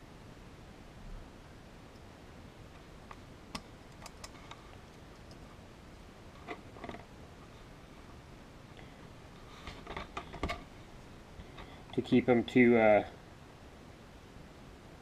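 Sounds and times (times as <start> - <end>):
small metal parts clicking: 3.1 - 5.4.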